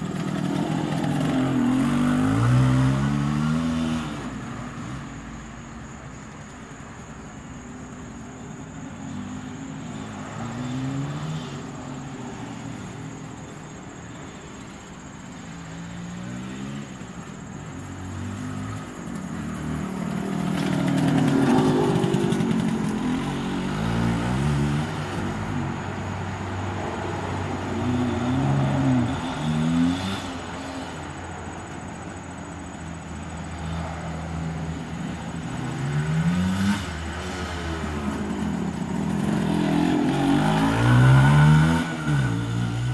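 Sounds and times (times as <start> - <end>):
two-stroke motorcycle engine accelerating: 0.0 - 4.3, 17.8 - 25.5, 34.5 - 42.9.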